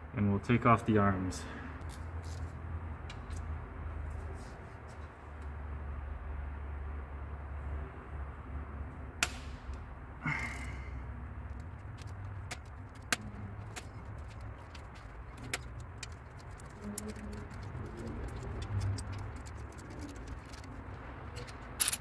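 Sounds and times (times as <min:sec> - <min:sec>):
hand ratchet clicking: 0:11.5 - 0:22.0.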